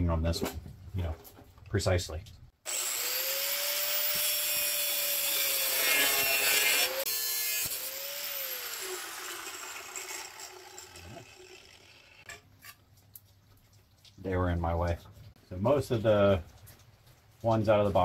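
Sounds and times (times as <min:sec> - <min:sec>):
angle grinder grinding metal: 0:02.7 - 0:12.4.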